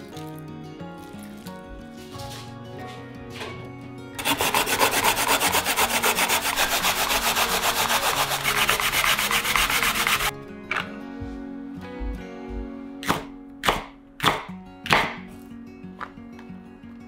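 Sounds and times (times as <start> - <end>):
radish grated on plastic grater: 4.2 - 10.3.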